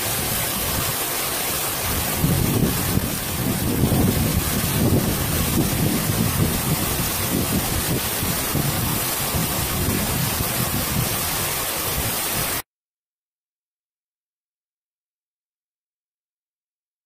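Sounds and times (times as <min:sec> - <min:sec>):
waterfall rushing and splashing: 0:00.0 - 0:12.6.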